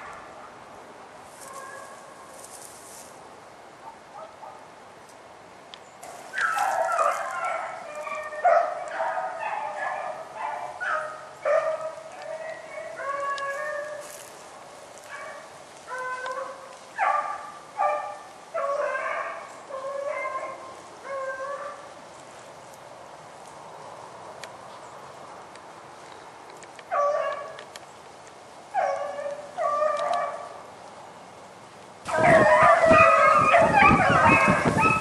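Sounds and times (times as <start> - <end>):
dogs barking loudly: 3.8 - 4.7, 6.0 - 14.3, 15.0 - 21.9, 26.9 - 27.6, 28.7 - 30.7, 32.1 - 35.0
hunting dogs baying: 6.2 - 14.3, 15.0 - 21.9, 28.7 - 30.6, 32.1 - 35.0.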